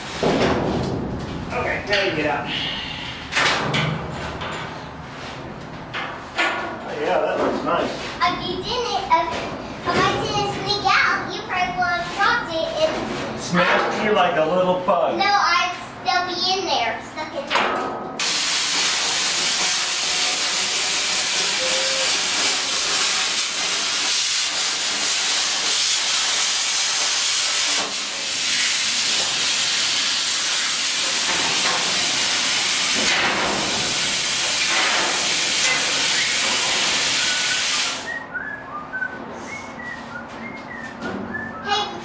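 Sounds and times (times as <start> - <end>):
cutting torch hissing: 18.2 - 38.1.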